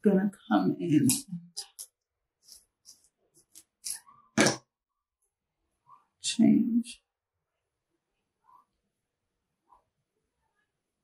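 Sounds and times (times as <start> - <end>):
person speaking: 0.0 - 2.6.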